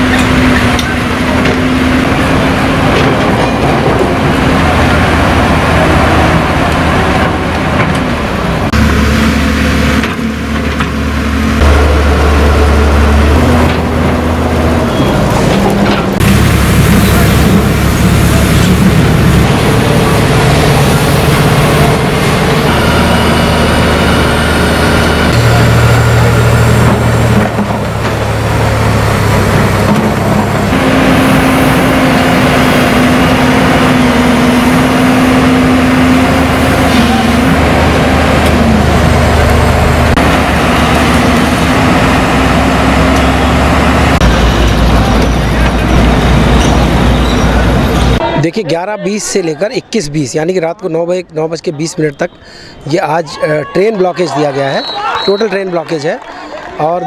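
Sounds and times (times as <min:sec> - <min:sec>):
excavator diesel engine running: 0:00.0 - 0:49.9.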